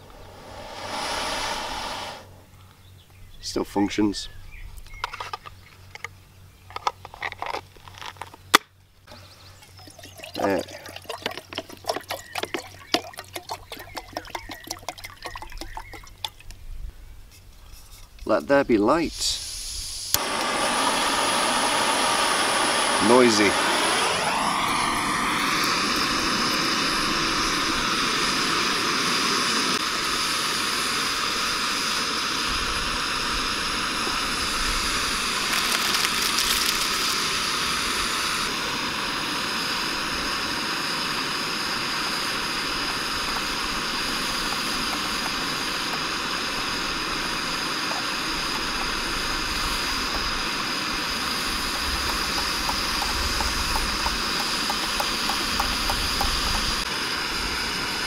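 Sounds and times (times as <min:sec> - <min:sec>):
gas stove flame roaring: 0:00.0 - 0:02.4, 0:18.9 - 0:58.0.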